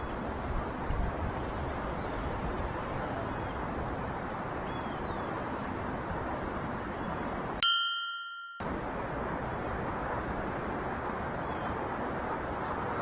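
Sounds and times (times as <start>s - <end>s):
ringing metallic ding: 7.6s - 8.7s
rushing background noise: 8.6s - 13.0s.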